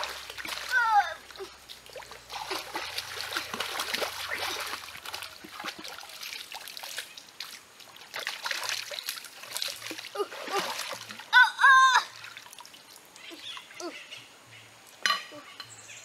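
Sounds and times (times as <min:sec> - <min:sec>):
stream water trickling: 0:00.0 - 0:15.9
hands splashing in water: 0:01.9 - 0:11.2.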